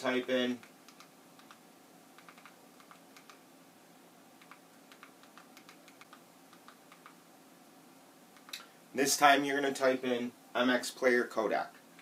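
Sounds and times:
remote control buttons clicking: 0.6 - 1.6, 2.2 - 3.4, 4.4 - 7.2.

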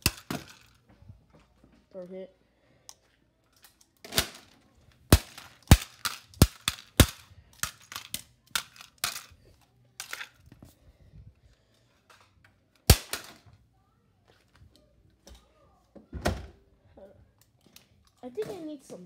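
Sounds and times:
plastic mouse being smashed: 5.1 - 7.8, 12.8 - 13.4.

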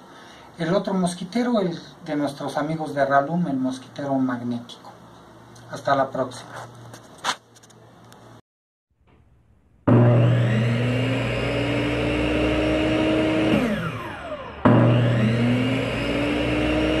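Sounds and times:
circular saw motor whining: 9.8 - 17.0.

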